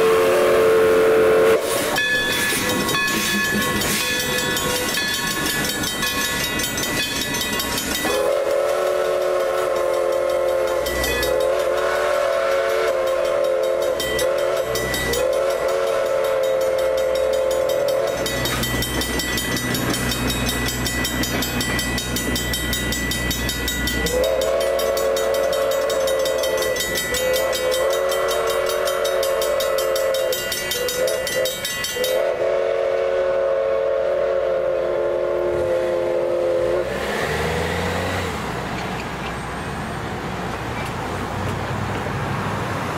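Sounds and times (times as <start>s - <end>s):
steam locomotive whistle blasts: 0.0s - 5.2s, 8.0s - 37.4s
train cars rumbling on rails: 0.0s - 42.9s
crossing warning bell ringing: 1.9s - 33.1s.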